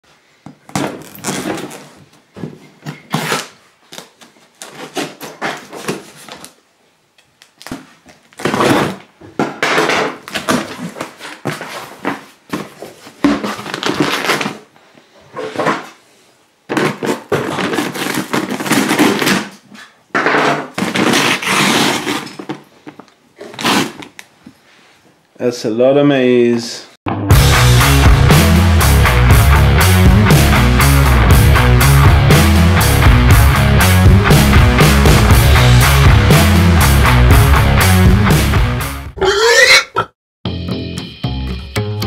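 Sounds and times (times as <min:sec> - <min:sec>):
knife slitting paper sack: 0:00.7 - 0:02.0, 0:16.7 - 0:20.0, 0:20.7 - 0:22.6, 0:23.4 - 0:24.2
cardboard scraping: 0:00.7 - 0:06.6, 0:10.2 - 0:14.7, 0:16.7 - 0:20.0, 0:20.7 - 0:24.2
paper rustling: 0:10.2 - 0:14.7, 0:16.7 - 0:20.0.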